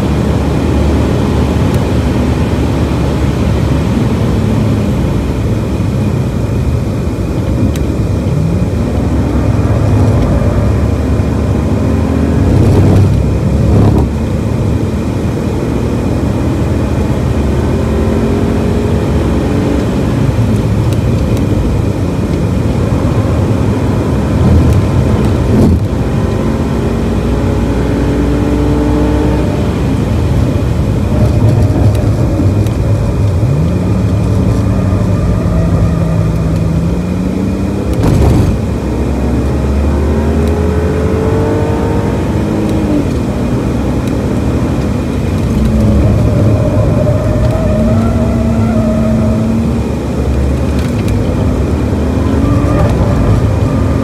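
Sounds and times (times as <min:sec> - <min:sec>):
tyre and wind noise: 0:00.0 - 0:17.0, 0:19.3 - 0:39.6, 0:40.3 - 0:54.0
car engine revving: 0:00.0 - 0:54.0.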